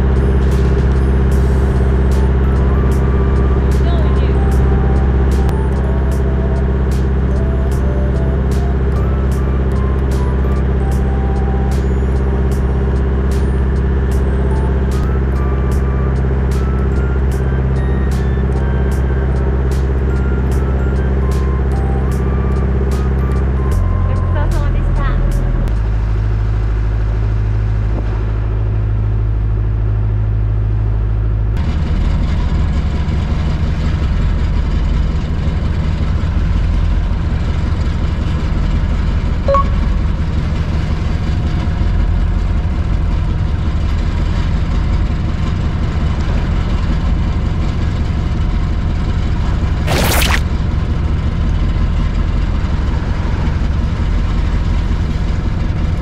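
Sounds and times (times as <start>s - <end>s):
boat engine running: 0.0s - 30.8s.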